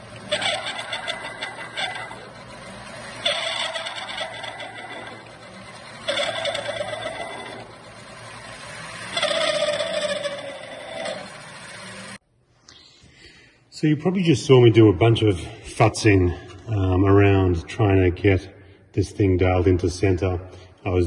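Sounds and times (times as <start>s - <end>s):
drill boring into metal: 0.0s - 12.2s
lathe humming: 0.0s - 12.2s.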